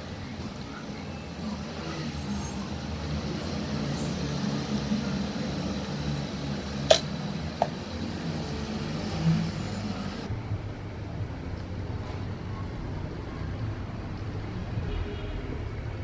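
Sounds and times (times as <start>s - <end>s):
low mechanical hum: 0.0s - 12.7s.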